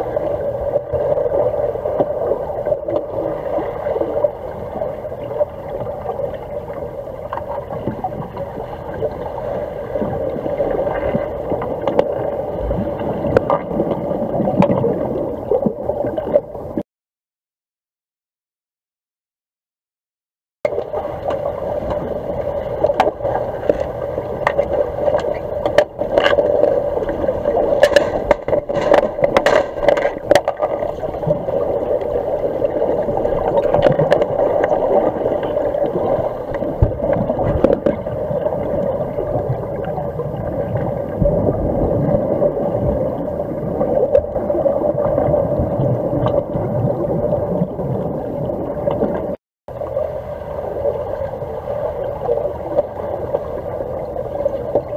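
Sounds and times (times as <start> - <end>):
sharp underwater clicks and knocks: 22.8 - 31.4, 33.5 - 34.8, 36.5 - 38.1.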